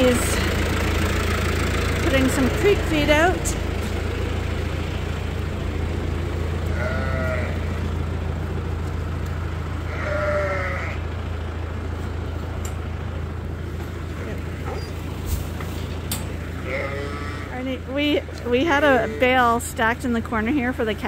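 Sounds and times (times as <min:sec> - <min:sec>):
tractor engine drone: 0:00.0 - 0:21.0
sheep bleating: 0:06.6 - 0:07.8, 0:09.8 - 0:11.1, 0:16.6 - 0:17.6, 0:18.7 - 0:19.6.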